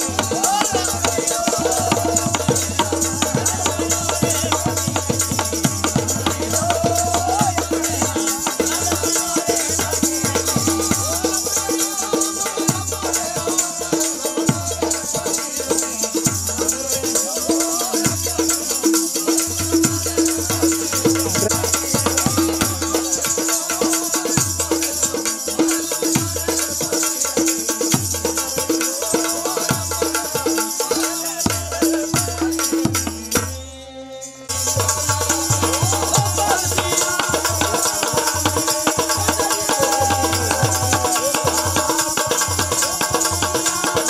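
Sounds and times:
tabla drums: 0:00.0 - 0:33.8, 0:34.5 - 0:44.0
jingling hand percussion: 0:00.0 - 0:44.0.

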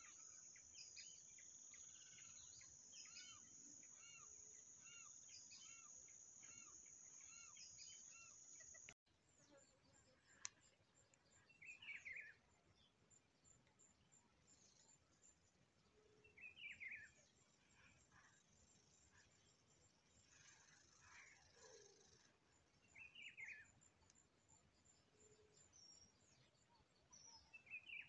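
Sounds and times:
high insect drone: 0:00.0 - 0:09.0
short bird chirps: 0:00.0 - 0:09.0.

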